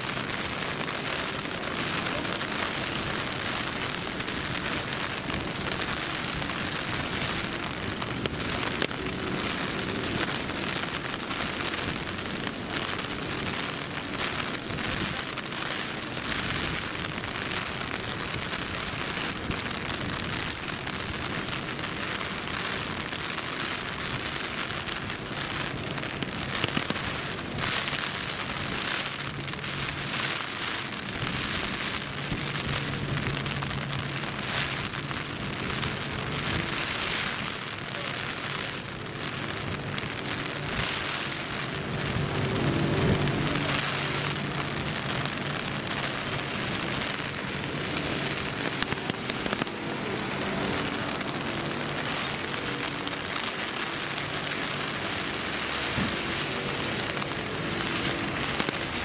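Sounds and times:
steady rain with drop taps: 0:00.0 - 0:59.0.

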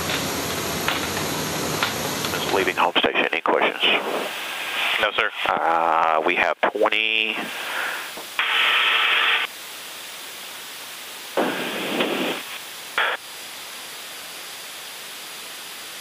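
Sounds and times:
steady low hiss: 0:00.0 - 0:16.0
radio static bursts: 0:02.3 - 0:09.5, 0:11.4 - 0:13.2.

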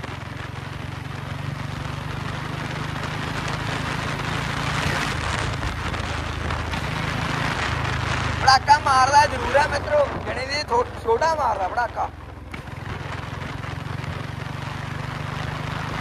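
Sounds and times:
motorcycle engine running: 0:00.0 - 0:16.0
wind rushing over microphone: 0:01.4 - 0:11.4.

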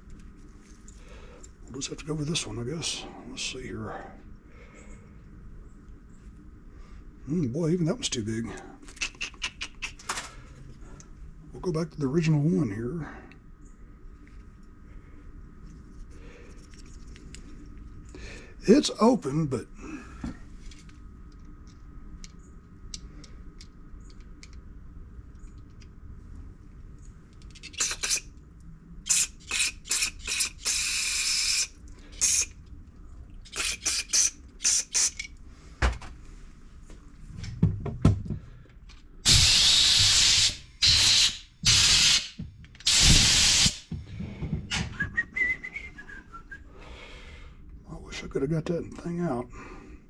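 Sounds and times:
aerosol spray hissing: 0:27.8 - 0:28.2, 0:29.1 - 0:32.5, 0:33.5 - 0:35.2, 0:39.3 - 0:43.9.

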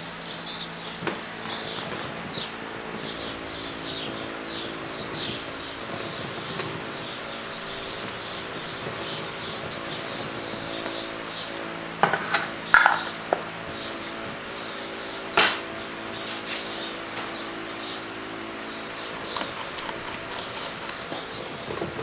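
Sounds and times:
small birds chirping: 0:00.0 - 0:22.0
steady low hum: 0:00.0 - 0:22.0.

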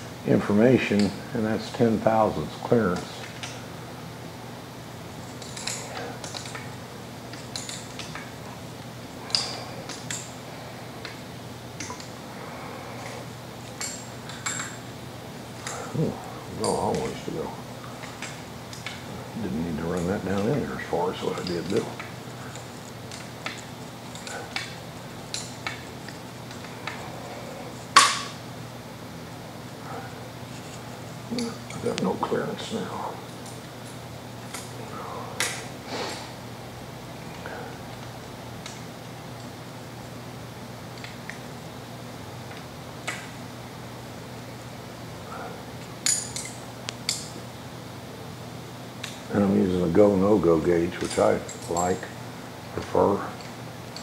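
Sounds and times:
metallic clicks of wrenches: 0:05.3 - 0:06.7, 0:07.3 - 0:08.3, 0:46.0 - 0:47.4
metal clink with ring: 0:07.3 - 0:08.2, 0:46.0 - 0:47.4
wrenches clicking on metal: 0:50.9 - 0:52.1.

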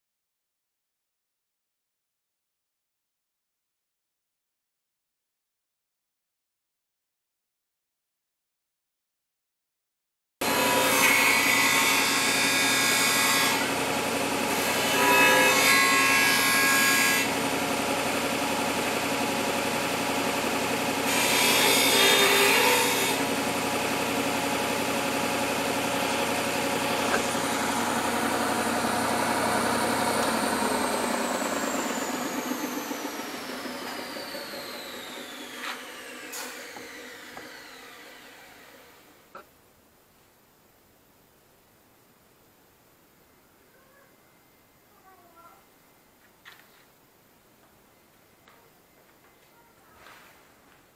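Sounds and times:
belt sander running: 0:11.5 - 0:39.2.

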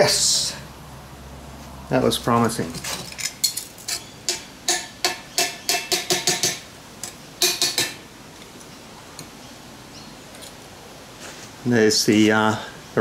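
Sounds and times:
metal clinks and knocks: 0:02.7 - 0:08.0.

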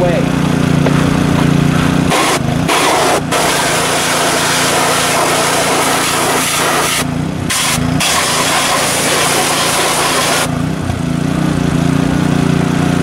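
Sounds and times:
motor hum: 0:00.0 - 0:13.0
pressure washer spray hissing: 0:02.1 - 0:10.5.

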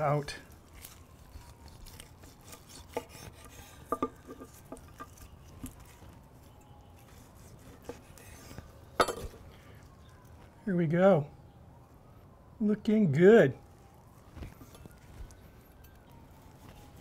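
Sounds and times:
knife slicing steak on board: 0:01.8 - 0:05.8, 0:07.1 - 0:08.6.

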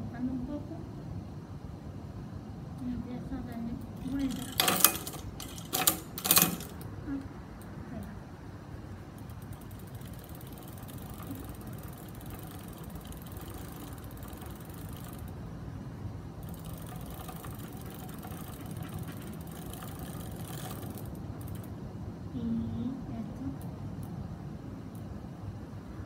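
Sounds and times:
bicycle chain running: 0:04.0 - 0:06.8, 0:09.0 - 0:15.5, 0:16.3 - 0:21.7.

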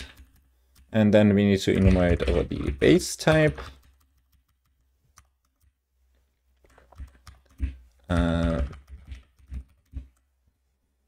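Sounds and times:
computer keyboard keystrokes: 0:03.2 - 0:05.8, 0:06.7 - 0:07.7.

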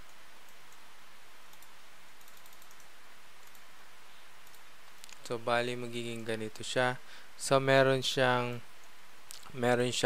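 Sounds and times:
steady background hiss: 0:00.0 - 0:10.0
mouse and keyboard clicks: 0:01.5 - 0:03.7, 0:04.4 - 0:05.2.

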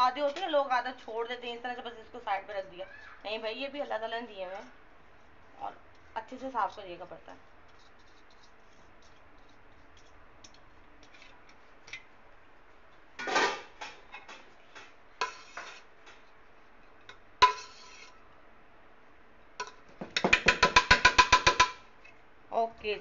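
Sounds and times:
metal spoon scraping metal pot: 0:15.2 - 0:15.9, 0:17.4 - 0:18.2.

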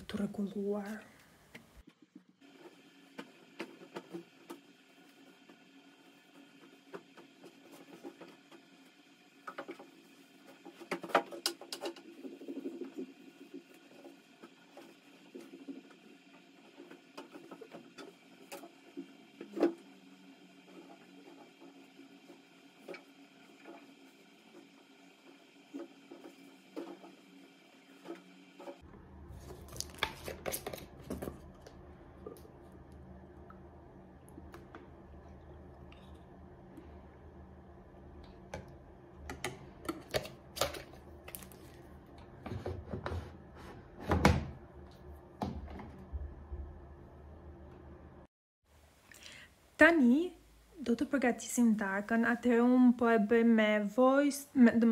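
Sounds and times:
low hum: 0:28.7 - 0:39.9.

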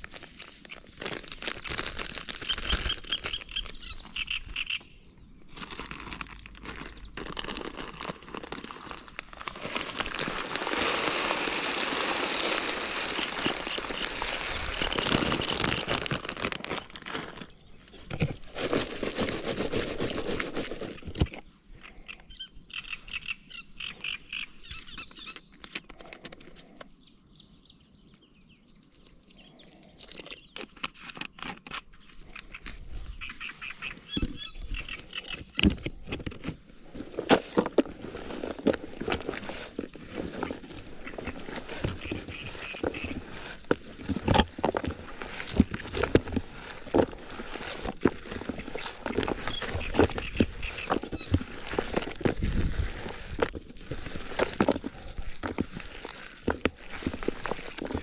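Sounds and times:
rustling handling noise: 0:00.0 - 0:04.6, 0:05.5 - 0:21.6, 0:29.0 - 0:58.0
rapid high chirping calls: 0:02.4 - 0:05.1, 0:21.8 - 0:25.5, 0:31.9 - 0:35.6.

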